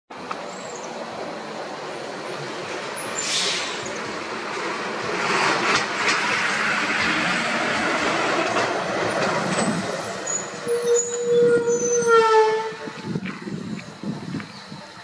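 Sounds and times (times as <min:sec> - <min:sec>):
brief hiss: 0:03.2 - 0:03.9.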